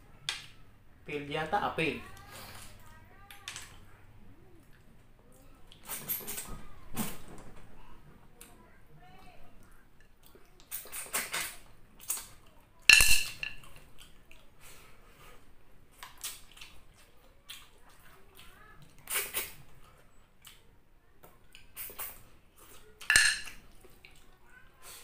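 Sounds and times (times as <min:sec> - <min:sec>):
soft sucking sounds: 0:10.3 - 0:12.6, 0:16.1 - 0:20.7, 0:21.4 - 0:23.0
shells clinking on ceramic plate: 0:12.9 - 0:13.6, 0:23.1 - 0:23.6.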